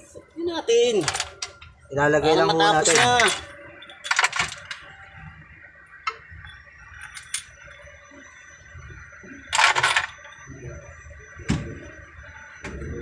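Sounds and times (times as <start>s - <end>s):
metal parts and tools clinking: 1.0s - 1.6s, 2.9s - 4.8s, 7.0s - 7.5s, 9.5s - 10.3s.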